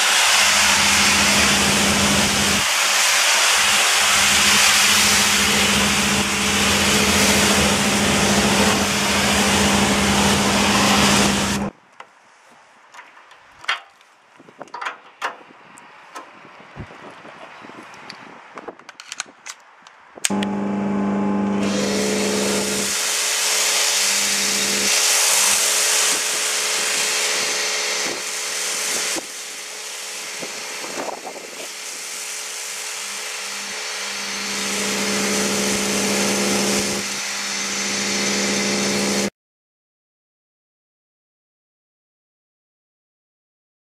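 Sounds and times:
foam lance spray hiss: 0.0 - 7.6, 22.8 - 36.8
pressure washer motor hum: 0.0 - 11.7, 20.3 - 39.3.

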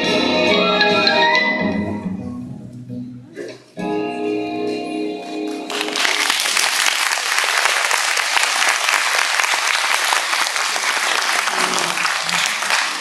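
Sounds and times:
music: 0.0 - 6.4
audience applauding: 5.5 - 13.0.

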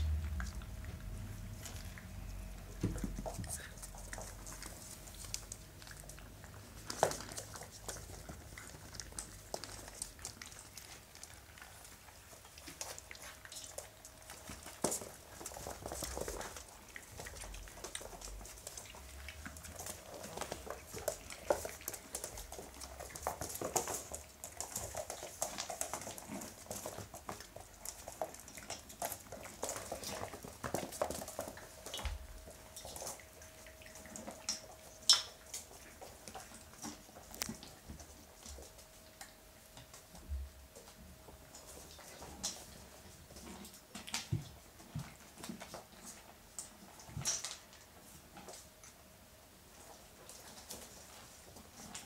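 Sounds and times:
food clicking on metal bowls: 0.0 - 38.6
puppies crunching dry kibble: 0.0 - 52.0.

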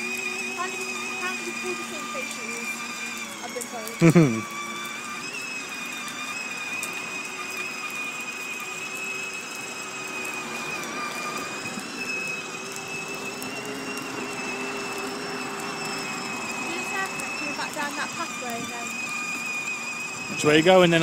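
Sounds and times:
electric toy car motor whine: 0.0 - 21.0.

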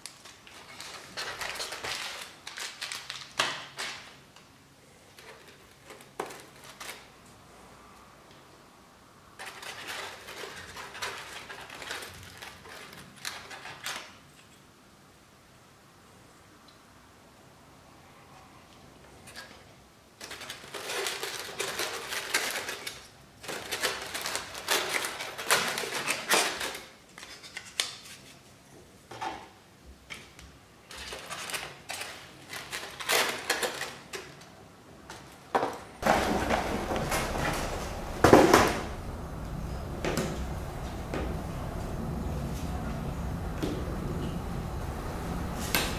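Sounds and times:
steady room hum: 0.0 - 45.9
foam packaging scraping and rustling: 0.1 - 4.0, 5.1 - 7.4, 9.4 - 14.2, 20.2 - 28.6, 36.0 - 38.9.

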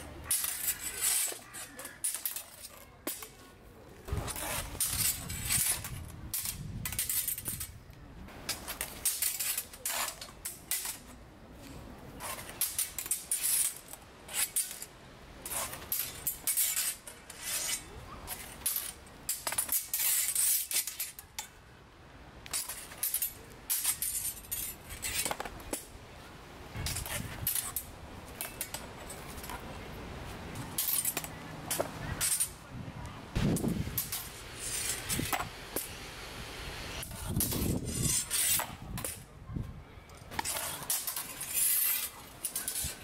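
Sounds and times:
steel swords clinking on bucklers: 0.2 - 3.4, 30.6 - 32.6, 40.0 - 43.0.

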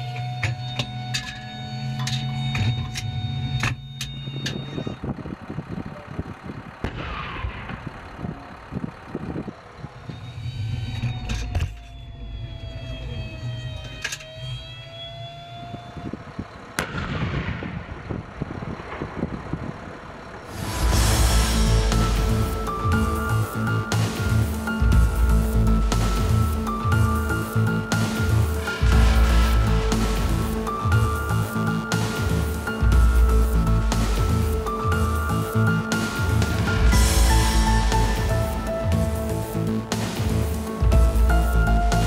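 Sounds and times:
steady mechanical hum: 0.0 - 42.0
electric whine: 10.0 - 16.6, 20.4 - 42.0.

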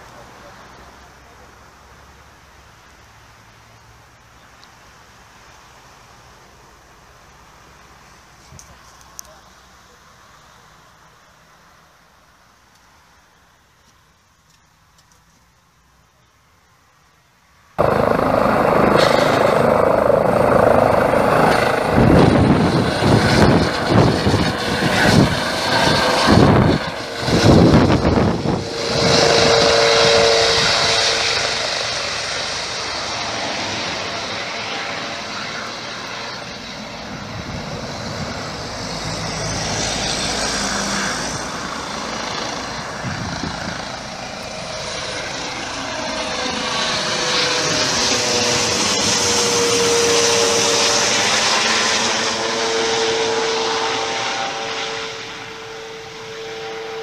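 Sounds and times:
helicopter rotor and turbine: 17.8 - 57.0.

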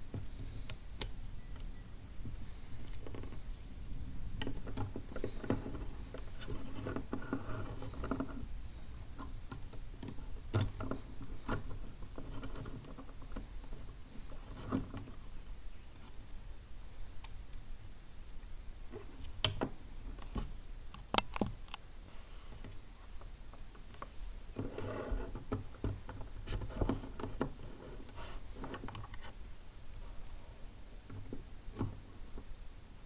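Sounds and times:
plastic parts clicking and rattling: 9.1 - 15.2.

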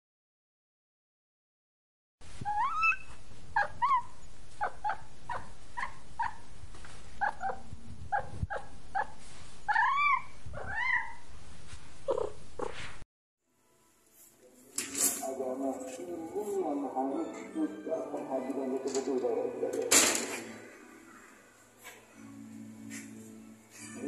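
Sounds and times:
cat meowing: 9.7 - 11.2.

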